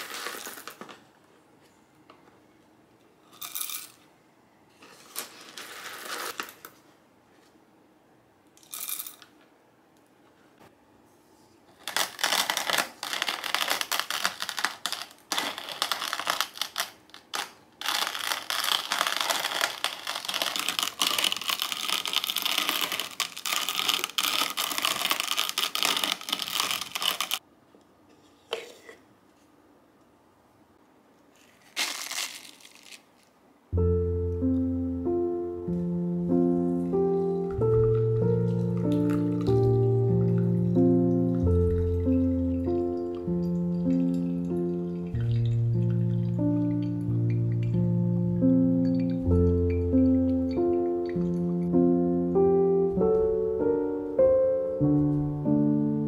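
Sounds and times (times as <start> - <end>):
crinkling handling noise: 0.0 - 1.7, 4.7 - 7.6, 11.6 - 27.4, 31.2 - 33.4, 36.8 - 47.8.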